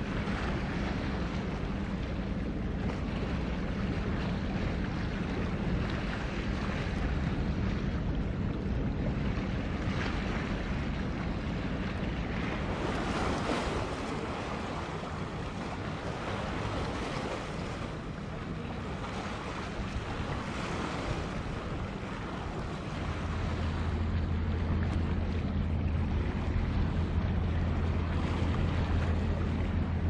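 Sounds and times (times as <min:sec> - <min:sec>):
ship engine drone: 0:00.0 - 0:30.0
water noise: 0:00.0 - 0:30.0
wind on microphone: 0:00.0 - 0:30.0.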